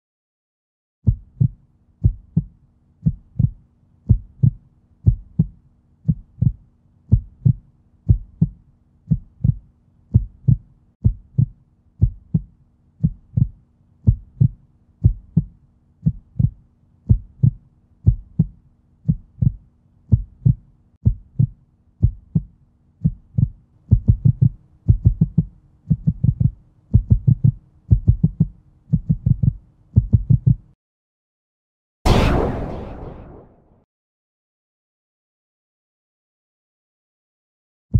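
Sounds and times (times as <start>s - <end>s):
heartbeat thumps: 1.0s - 30.8s.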